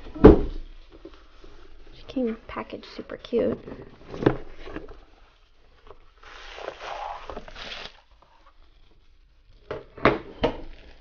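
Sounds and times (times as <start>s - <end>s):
cardboard box rustling and sliding: 6.2s - 8.0s.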